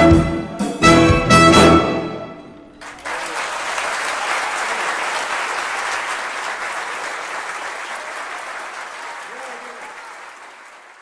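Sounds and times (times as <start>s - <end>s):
audience applause: 2.8s - 11.0s.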